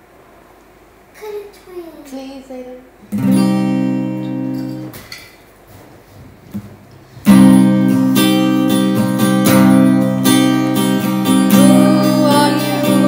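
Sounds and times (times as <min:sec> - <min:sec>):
acoustic guitar strumming: 0:03.1 - 0:05.3, 0:07.2 - 0:13.0.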